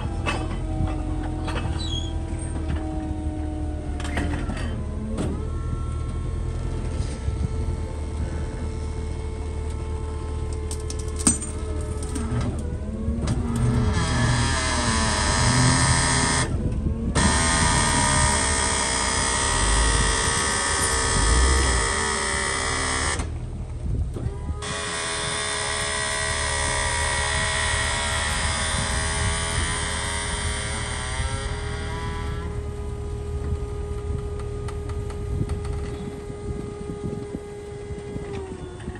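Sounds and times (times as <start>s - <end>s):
hydraulic mechanical whine: 0.0s - 38.9s
low engine rumble: 0.0s - 38.9s.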